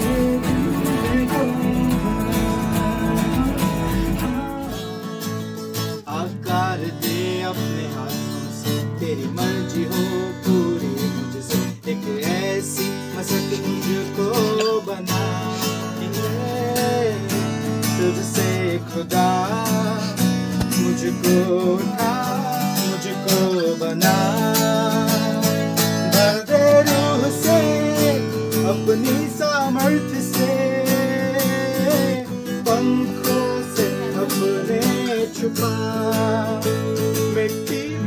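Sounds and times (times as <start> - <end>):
acoustic guitar strumming: 0.0 - 38.0
man singing: 0.0 - 38.0.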